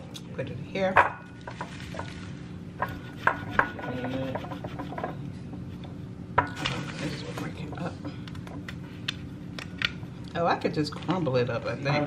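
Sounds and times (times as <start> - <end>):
cheese grating: 2.8 - 5.2
grater knocking against ceramic bowl: 2.8 - 5.2.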